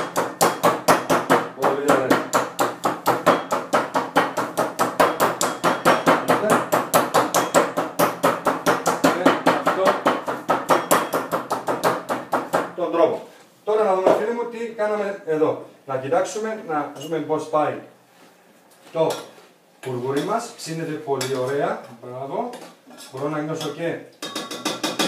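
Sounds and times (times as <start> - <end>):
meat mallet pounding on wooden board: 0.0 - 12.8, 24.3 - 25.0.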